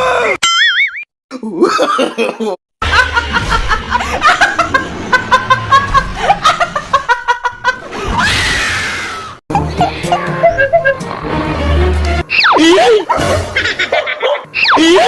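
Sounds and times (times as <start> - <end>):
woman laughing: 9.5 - 11.1, 12.5 - 15.0.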